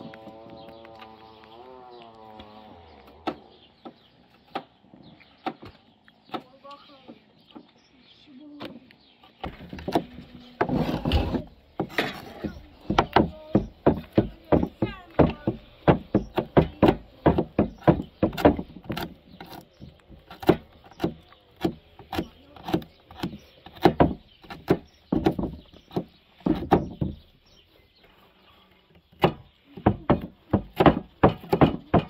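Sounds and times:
knife chopping on wooden board: 20.3 - 27.1.

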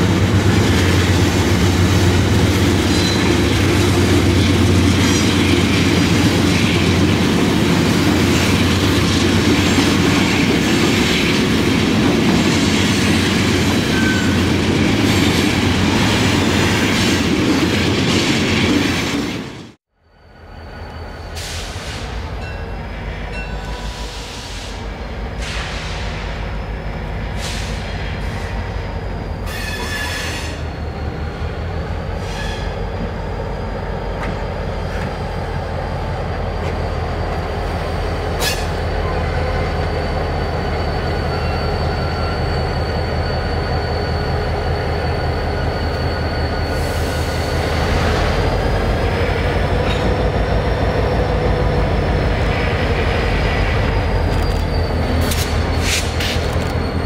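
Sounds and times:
diesel locomotive engine rumbling: 0.0 - 57.0
wheel flange squeal: 2.4 - 5.3, 27.4 - 35.2, 36.3 - 57.0.

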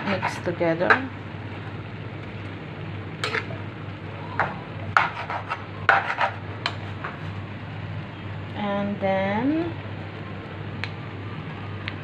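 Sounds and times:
metal fork scraping a frying pan: 0.0 - 0.5, 3.2 - 3.6, 5.0 - 7.0.

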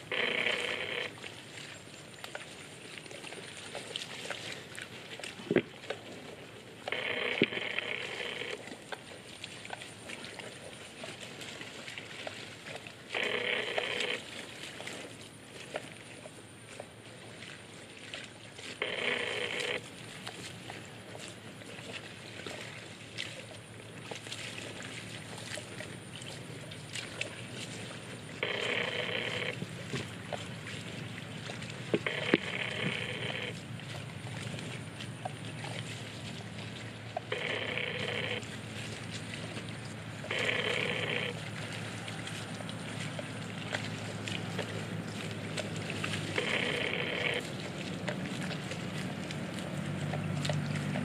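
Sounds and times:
buffalo cropping wet grass: 0.0 - 51.0
loud steady buzz: 40.2 - 41.5.

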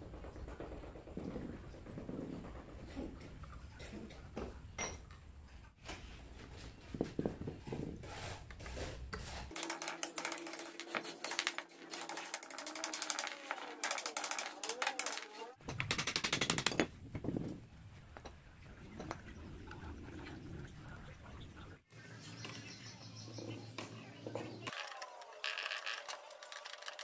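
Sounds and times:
small metal parts clicking: 9.5 - 16.9.

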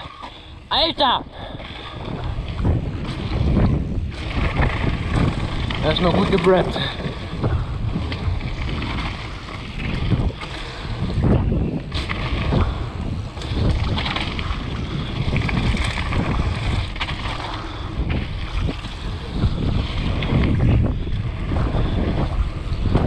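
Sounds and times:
bike knocking and rattling: 0.0 - 23.0
tyres rolling on dirt trail: 0.0 - 23.0
wind buffeting microphone: 0.0 - 23.0.

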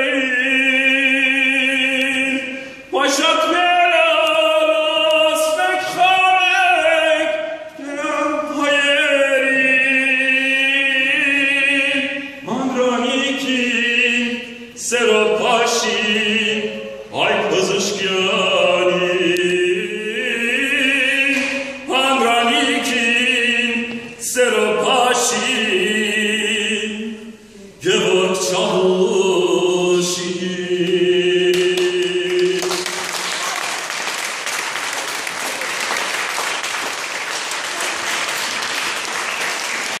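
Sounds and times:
man singing unaccompanied: 0.0 - 33.0
applause: 31.8 - 40.0.

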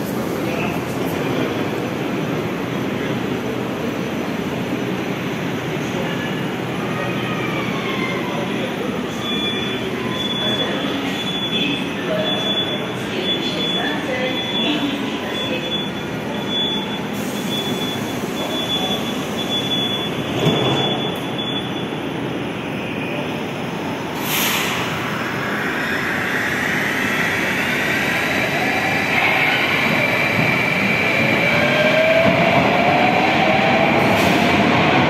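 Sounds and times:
train rumbling and clattering: 23.4 - 35.0.

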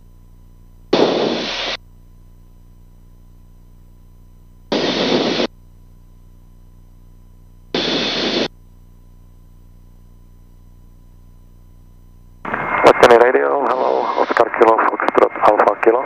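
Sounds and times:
faint steady hum: 0.0 - 16.0
radio static bursts: 1.0 - 1.8, 4.7 - 5.5, 7.8 - 8.5, 12.5 - 16.0.

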